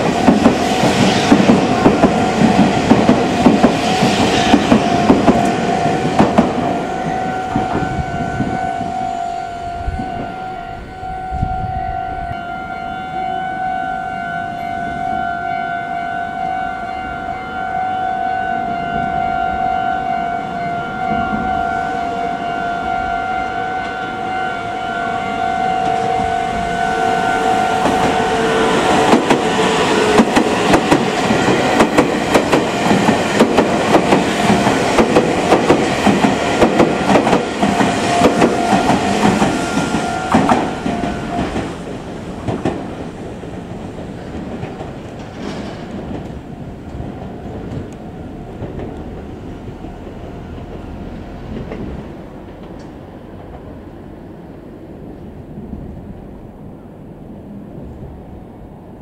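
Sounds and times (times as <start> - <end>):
train wheels clacking over rail joints: 0.0 - 6.8, 28.8 - 53.7
steady high tones: 20.1 - 42.4.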